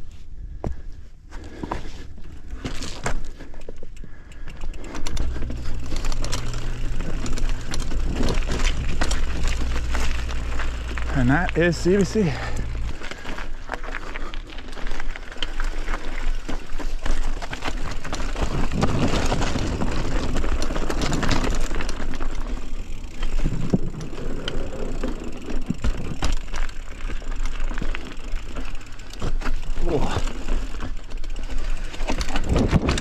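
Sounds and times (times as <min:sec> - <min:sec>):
bike tyres on dirt trail: 0:00.0 - 0:33.0
bike clicks and rattles: 0:01.3 - 0:33.0
low rumble: 0:05.1 - 0:13.7.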